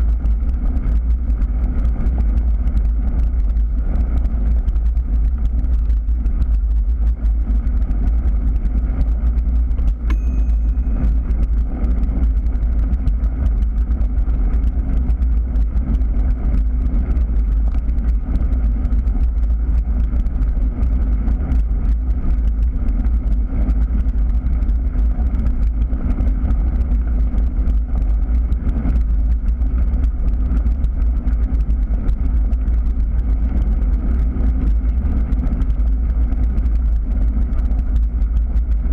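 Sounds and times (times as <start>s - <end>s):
gravel crackling under tyres: 0.0s - 38.9s
wind and tyre rumble: 0.0s - 38.9s
brief high ring: 10.1s - 11.1s.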